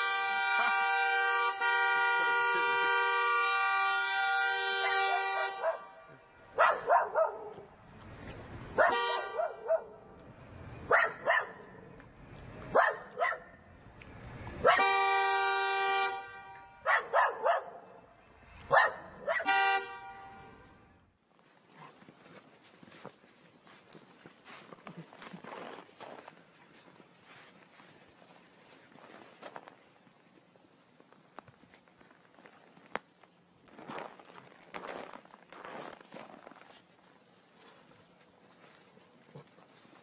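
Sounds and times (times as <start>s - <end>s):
car horn blaring: 0.0s - 6.6s, 8.8s - 9.6s, 14.7s - 16.9s, 19.4s - 20.9s
dog barking: 4.9s - 5.9s, 6.6s - 7.7s, 8.8s - 10.0s, 10.9s - 11.7s, 12.7s - 13.6s, 16.8s - 18.0s, 18.7s - 19.5s.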